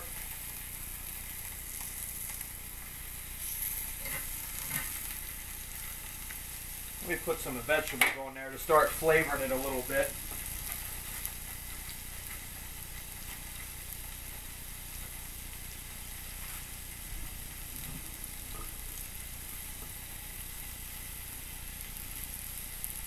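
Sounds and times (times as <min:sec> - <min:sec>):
steaks sizzling on grill pan: 0:00.0 - 0:23.0.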